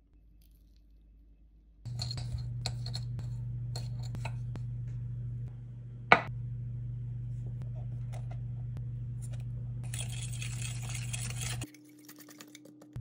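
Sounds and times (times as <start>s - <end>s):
metal utensil scraping glass cup: 1.9s - 4.4s, 9.8s - 11.7s
steady low hum: 1.9s - 11.7s.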